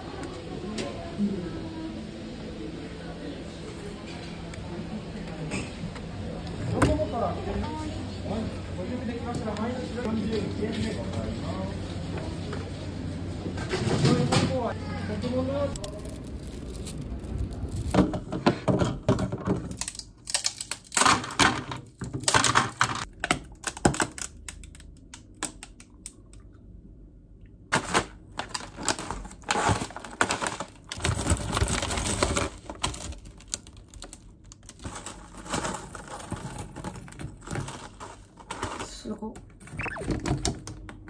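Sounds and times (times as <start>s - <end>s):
candy pieces dropping: 15.6s - 18.3s.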